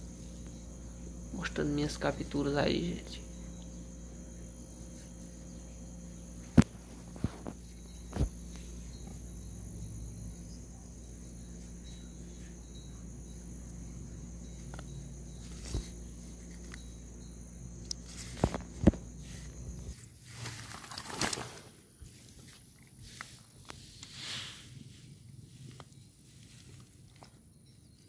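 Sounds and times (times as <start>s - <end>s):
high-pitched insect drone: 0.0s - 21.4s.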